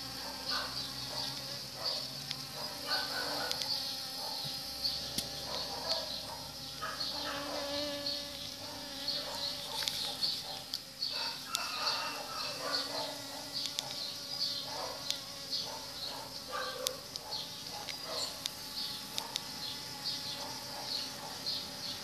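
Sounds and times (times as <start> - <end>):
bees buzzing: 0.0 - 22.0.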